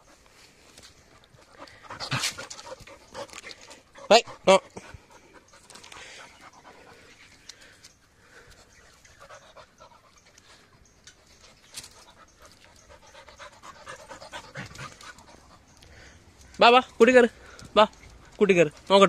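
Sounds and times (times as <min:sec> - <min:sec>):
puppy panting: 0:01.0 - 0:07.5, 0:08.4 - 0:16.2.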